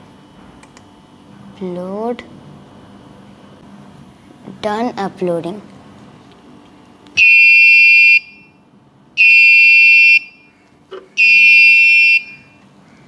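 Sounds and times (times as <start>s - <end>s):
alarm buzzer beeping: 7.2s - 8.6s, 9.2s - 10.5s, 11.2s - 12.6s.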